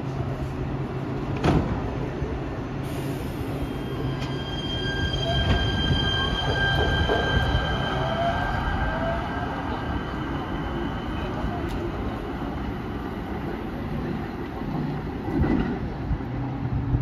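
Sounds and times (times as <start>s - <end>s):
train low hum: 0.0s - 17.0s
high-pitched whining tones: 3.6s - 11.5s.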